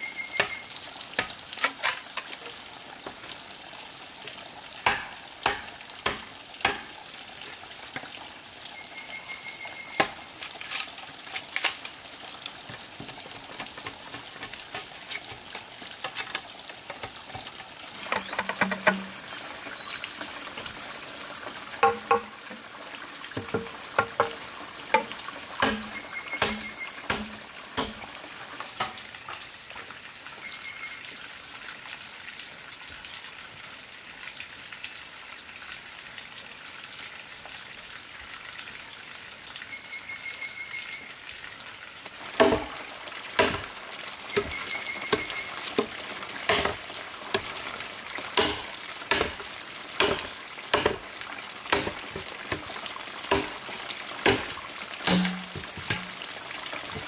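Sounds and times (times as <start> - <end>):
machete chopping bamboo: 4.8 - 7.0, 25.6 - 28.0, 42.4 - 42.8, 43.4 - 43.7, 44.4 - 46.8, 48.4 - 51.1, 51.7 - 52.7, 53.3 - 53.6, 54.2 - 56.2
bamboo pieces knocking: 13.0 - 19.2, 21.8 - 22.4, 44.4 - 46.8, 48.4 - 51.0, 51.7 - 52.7, 53.3 - 53.6, 55.1 - 56.2.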